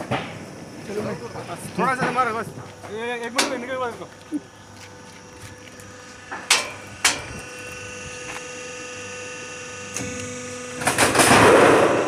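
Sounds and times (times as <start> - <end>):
machine hum with high whine: 0.0 - 12.0
sharp metallic knocks: 6.4 - 7.3.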